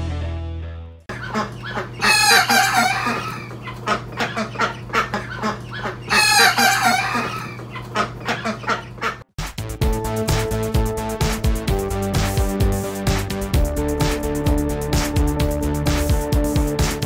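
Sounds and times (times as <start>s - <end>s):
chicken clucking: 1.1s - 9.2s
young cockerel crowing: 2.0s - 3.5s, 6.1s - 7.6s.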